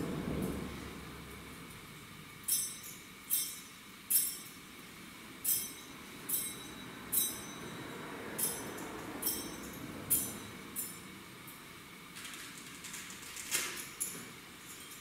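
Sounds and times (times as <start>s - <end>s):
metal censer clinking on chains: 2.5s - 4.6s, 8.4s - 11.0s, 13.8s - 15.0s.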